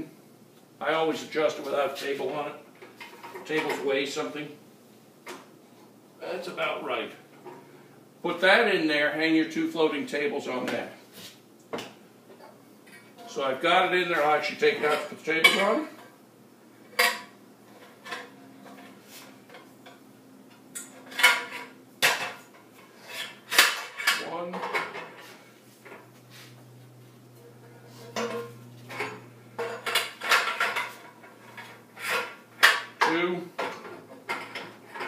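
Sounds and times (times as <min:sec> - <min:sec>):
metal parts clanking and rattling: 0:28.2 - 0:32.9.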